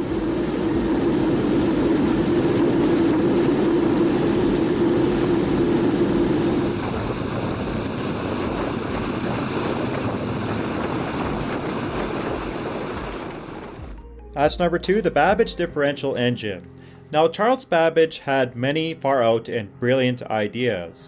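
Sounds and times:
model jet engine roaring: 0.0 - 13.8
high turbine whine: 0.0 - 15.4.

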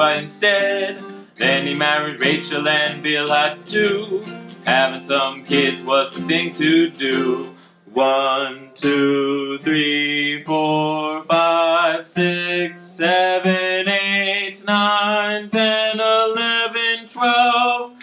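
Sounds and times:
acoustic guitar: 0.0 - 18.0
man singing long notes: 0.0 - 18.0.

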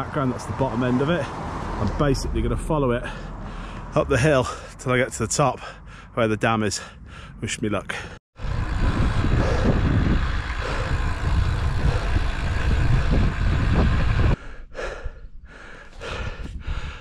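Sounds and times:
wind buffeting microphone: 8.4 - 17.0.

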